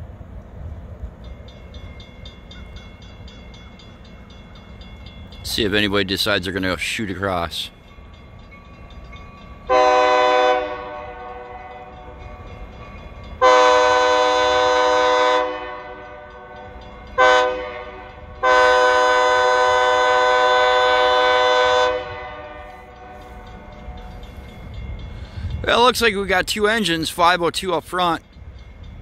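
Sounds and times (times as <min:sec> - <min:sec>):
locomotive air horn blasts: 0:09.7 - 0:12.0, 0:13.4 - 0:23.7.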